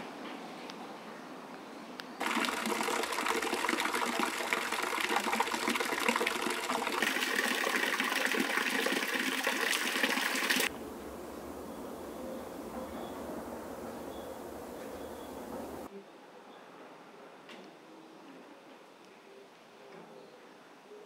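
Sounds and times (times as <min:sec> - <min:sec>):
running water splashing: 0:02.2 - 0:10.7.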